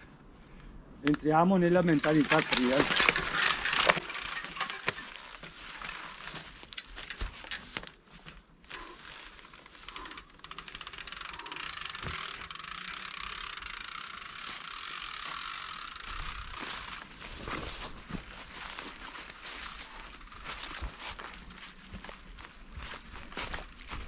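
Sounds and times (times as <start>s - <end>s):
bike tyres through dry leaves: 1.2s - 24.0s
bike freehub ticking: 2.0s - 8.0s, 8.7s - 17.1s, 19.8s - 22.0s.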